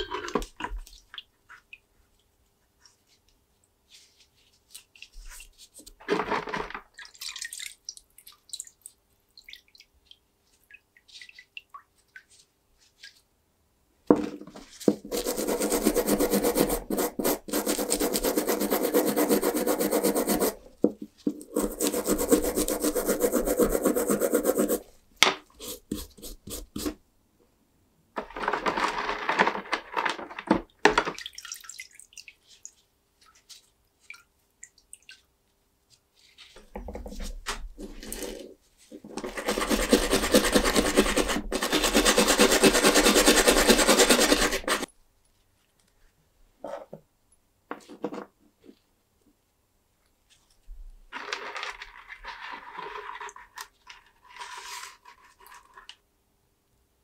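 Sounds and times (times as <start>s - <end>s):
brush scrubbing wet metal: 14.7s - 20.6s, 21.3s - 24.9s, 39.2s - 44.9s.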